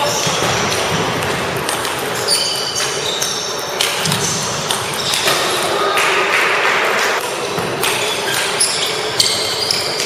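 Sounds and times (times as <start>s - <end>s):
table tennis balls clicking: 0.6s - 5.7s.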